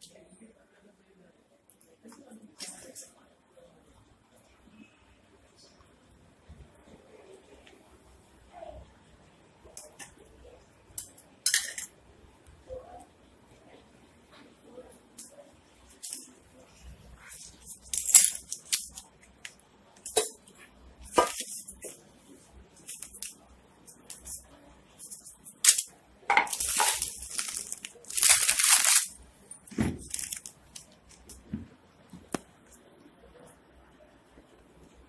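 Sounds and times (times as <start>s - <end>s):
metal vessels clinking: 11.5s - 11.9s, 25.0s - 29.1s
newspaper rustling: 26.5s - 29.2s, 29.9s - 31.3s.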